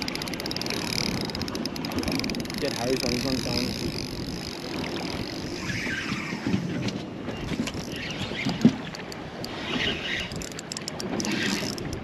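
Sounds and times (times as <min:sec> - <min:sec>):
water sloshing against boat: 0:00.0 - 0:12.0
wind buffeting microphone: 0:00.0 - 0:12.0.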